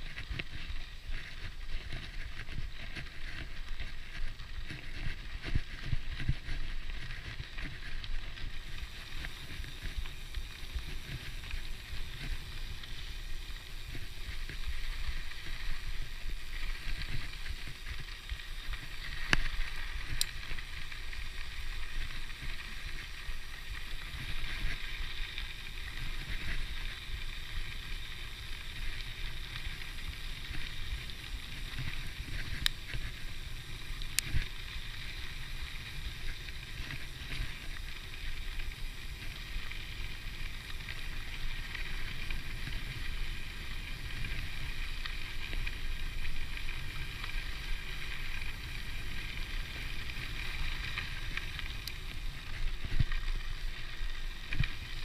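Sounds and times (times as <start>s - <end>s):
tyre rumble on dirt path: 0.0s - 55.0s
bicycle freehub ratchet buzzing: 8.3s - 53.0s.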